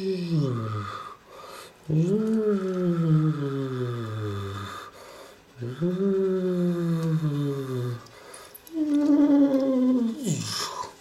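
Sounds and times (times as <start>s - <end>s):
person wordless vocal sliding down: 1.9s - 4.8s, 5.6s - 8.0s, 8.7s - 11.0s.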